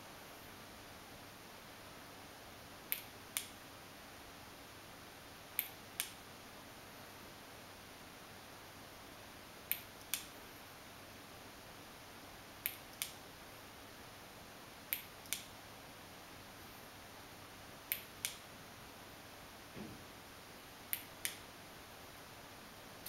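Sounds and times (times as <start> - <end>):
faint steady hiss: 0.0 - 23.0
sharp clicks in pairs: 2.9 - 3.6, 5.6 - 6.2, 9.7 - 10.3, 12.6 - 13.2, 14.9 - 15.5, 17.9 - 18.4, 20.9 - 21.4.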